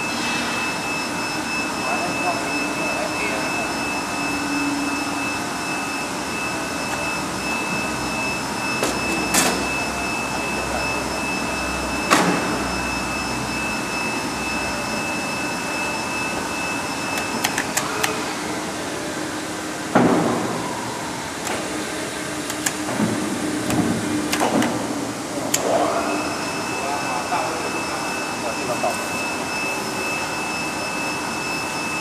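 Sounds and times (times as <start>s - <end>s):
sharp clicks and knocks: 22.5s - 24.8s.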